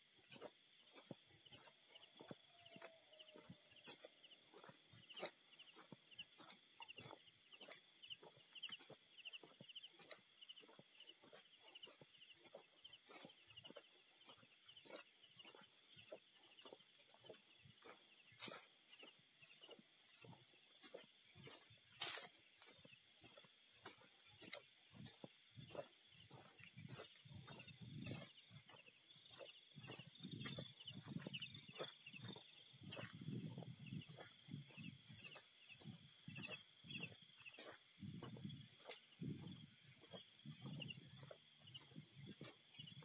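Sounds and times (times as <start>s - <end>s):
frogs trilling: 0.0s - 43.0s
high insect tones: 0.0s - 43.0s.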